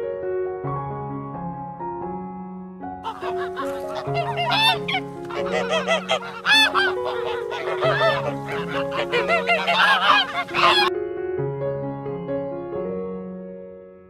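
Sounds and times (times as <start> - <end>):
soft background music: 0.0 - 14.0
waterfowl nasal calls: 3.0 - 10.9.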